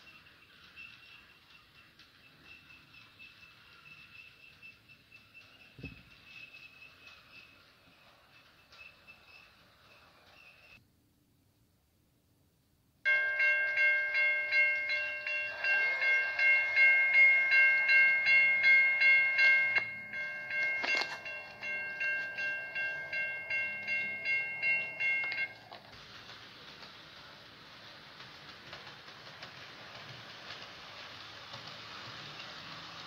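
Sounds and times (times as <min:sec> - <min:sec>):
railroad warning bell ringing: 0:13.1 - 0:25.9.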